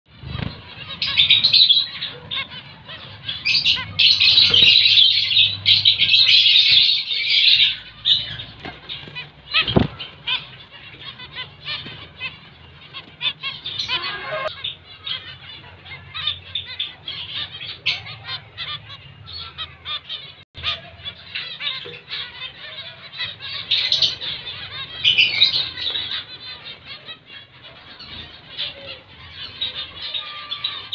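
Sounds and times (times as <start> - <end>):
finches chattering: 7.5 - 18.9.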